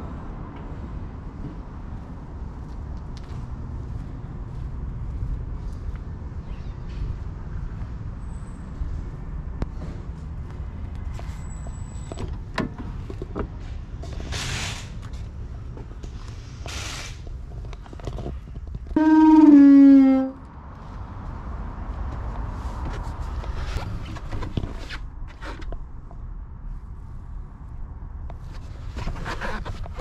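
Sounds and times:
van doors clicking and clunking: 12.1s - 13.6s
loud squeal: 19.0s - 20.4s.

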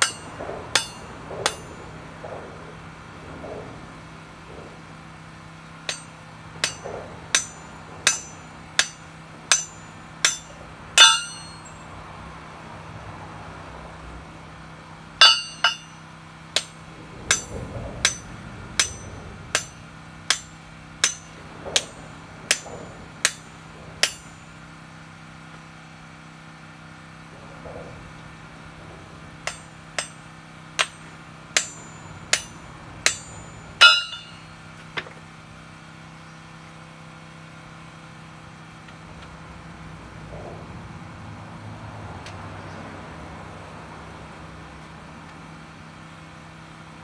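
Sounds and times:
hammer striking a steel plate: 0.0s - 2.4s, 5.9s - 11.8s, 15.2s - 16.0s, 16.6s - 24.5s, 29.5s - 34.6s.

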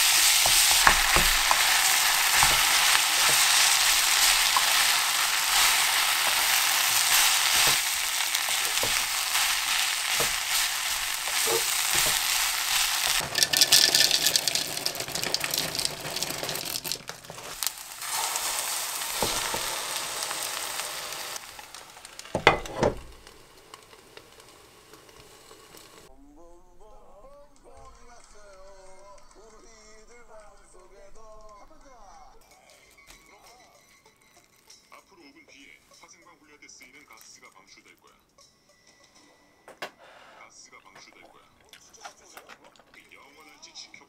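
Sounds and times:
spatula tapping a pan: 0.0s - 17.7s, 21.7s - 23.4s
whisk beating eggs in a cup: 0.0s - 19.7s
rice sizzling in a frying pan: 0.0s - 26.1s
cutting board knocking on pan: 22.4s - 23.2s.

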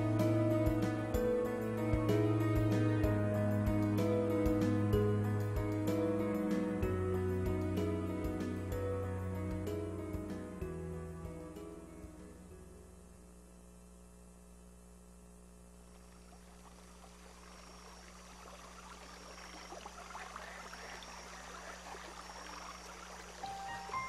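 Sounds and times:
soft water-like trickling: 15.9s - 24.0s.

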